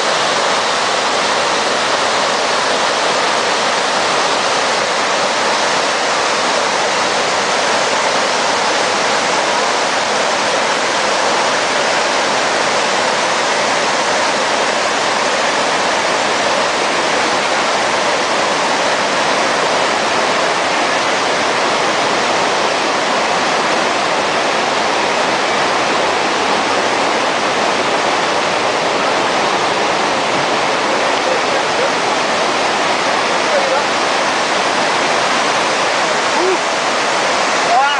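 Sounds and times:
falling water rushing: 0.0 - 37.9.

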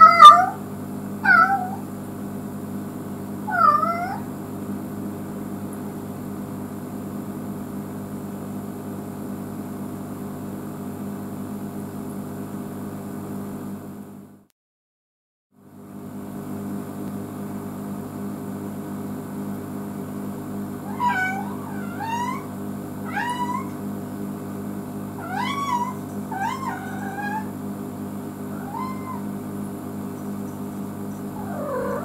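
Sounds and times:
cat meowing: 0.0 - 0.6, 1.2 - 1.9, 3.5 - 4.3, 20.8 - 23.8, 25.2 - 27.6, 28.5 - 29.4, 31.2 - 32.0
steady low hum: 19.4 - 32.0.

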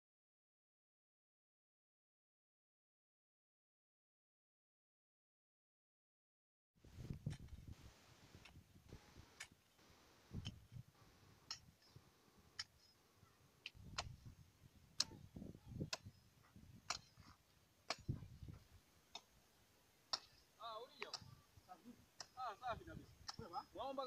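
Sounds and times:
hand hoe chopping soil: 13.6 - 14.3, 15.0 - 15.2, 16.8 - 19.3.

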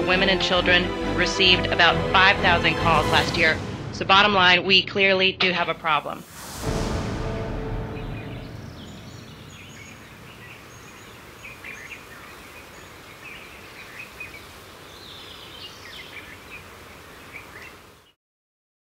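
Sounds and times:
steady outdoor hiss: 5.4 - 18.2
bird chirps and calls: 8.7 - 18.2.

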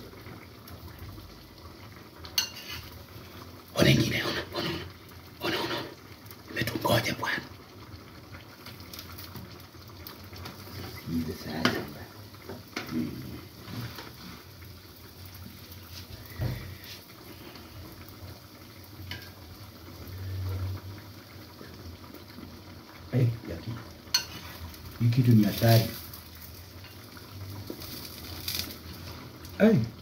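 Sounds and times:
stew sizzling and bubbling: 0.0 - 30.0
metal utensils clinking: 2.4 - 2.9, 24.1 - 24.5.

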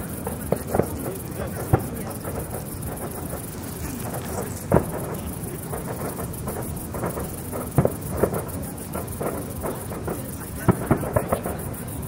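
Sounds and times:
fireworks bangs: 0.0 - 12.0
fireworks crackling: 0.0 - 12.0.

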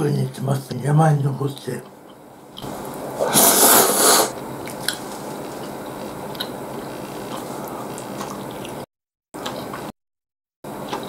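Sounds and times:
slurping noodles: 2.6 - 6.2
chewing with wet clicks: 4.6 - 9.9.

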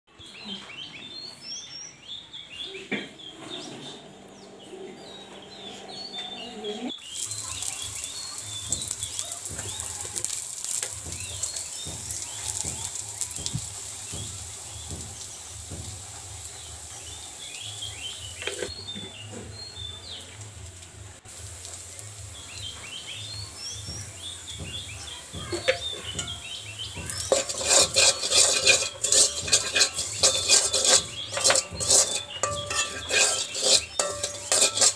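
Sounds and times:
birds chirping: 0.1 - 20.6, 21.3 - 34.9
steady hiss: 7.0 - 18.7
metal spatula scraping wok: 7.1 - 18.8, 23.5 - 34.9
spoon clinks: 27.2 - 34.9.

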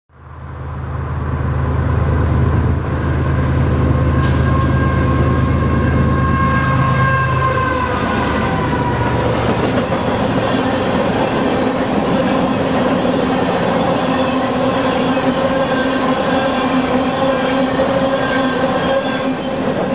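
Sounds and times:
diesel locomotive engines droning: 0.1 - 19.9
locomotive whine: 0.2 - 19.9
rail cars rumbling and clattering: 0.2 - 19.9.

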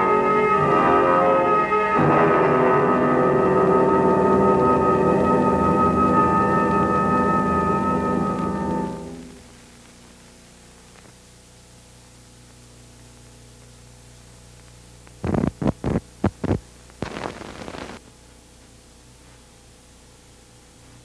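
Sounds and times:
film soundtrack hum and hiss: 0.0 - 21.0
crackling noise: 1.6 - 19.5.

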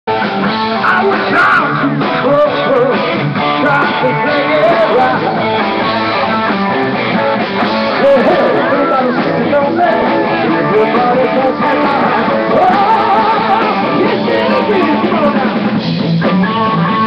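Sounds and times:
drums: 0.1 - 17.0
electric guitars: 0.1 - 17.0
man singing: 0.8 - 5.6, 8.0 - 15.8.

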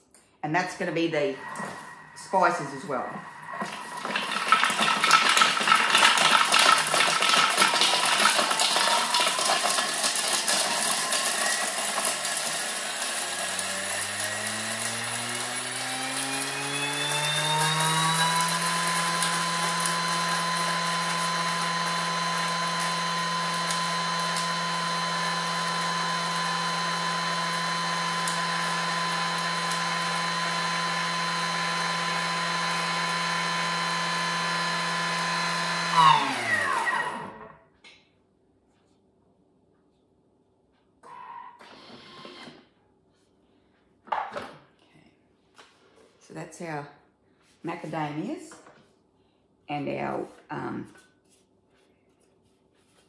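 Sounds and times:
blender motor whining: 0.9 - 37.7, 41.6 - 42.7.

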